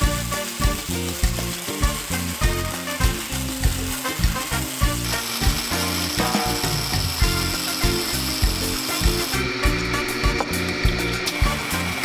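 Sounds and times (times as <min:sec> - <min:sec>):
background music with steady beat: 0:00.0 - 0:12.0
bandsaw cutting wood: 0:00.0 - 0:12.0
steady high whine: 0:03.0 - 0:12.0.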